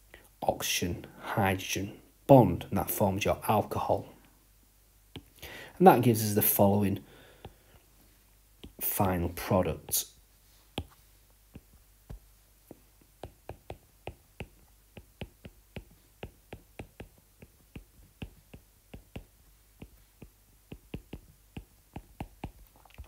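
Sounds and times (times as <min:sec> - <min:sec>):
stylus tapping on glass screen: 0:10.8 - 0:22.7.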